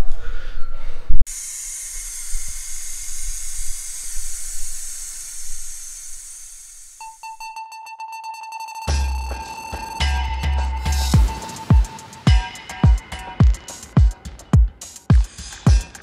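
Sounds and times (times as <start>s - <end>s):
high hiss of escaping gas: 1.3s - 7.0s, 11.0s - 16.0s
steady electronic tone: 1.3s - 15.0s.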